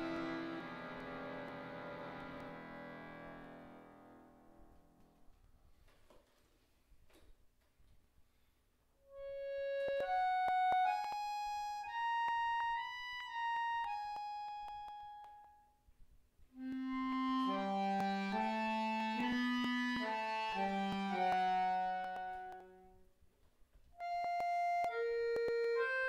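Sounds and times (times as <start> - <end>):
button accordion melody: 0.0 - 3.5, 9.1 - 15.5, 16.6 - 22.9, 24.0 - 26.0.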